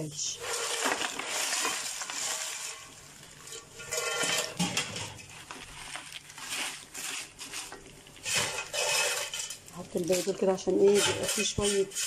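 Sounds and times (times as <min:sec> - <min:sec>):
bread crackling in frying pan: 0:00.0 - 0:12.0
wooden spoon scraping pan: 0:00.2 - 0:12.0.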